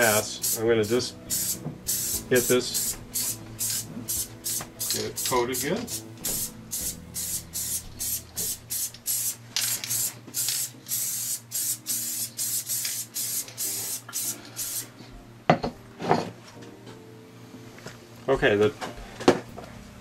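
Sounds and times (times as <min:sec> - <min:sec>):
aerosol spray hissing: 0:00.0 - 0:14.9.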